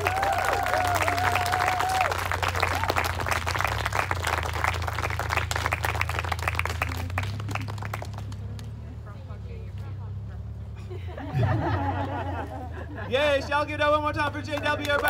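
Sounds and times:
long whoop: 0.0 - 3.1
audience applauding: 0.0 - 8.8, 14.5 - 15.0.

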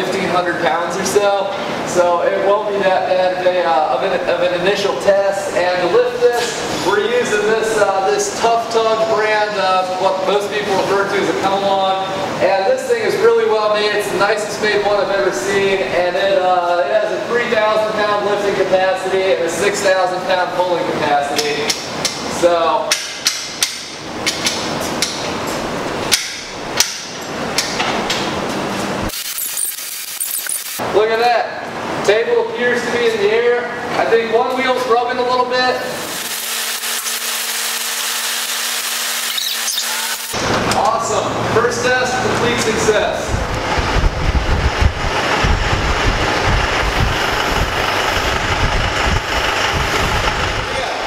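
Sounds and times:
tractor engine running: 43.3 - 50.9.

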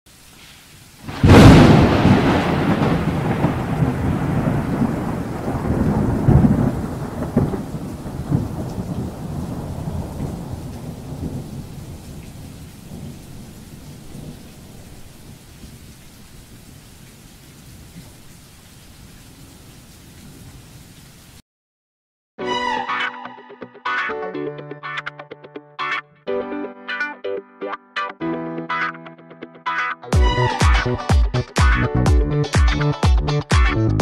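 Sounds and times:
rain hiss: 0.1 - 21.4
thunder rumbling: 1.0 - 15.9.

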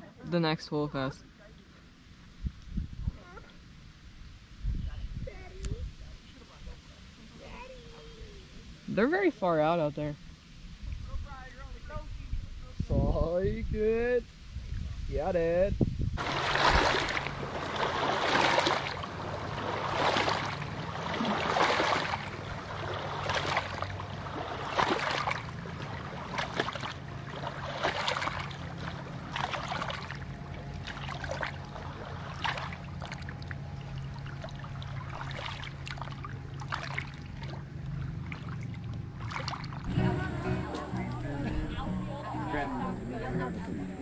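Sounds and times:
steady low hum: 15.6 - 44.0
waves lapping against rocks: 16.2 - 39.9.

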